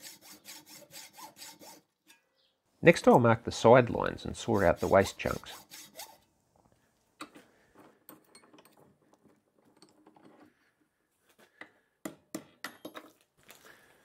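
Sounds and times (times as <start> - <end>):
metallic clinks and taps: 8.1 - 8.9.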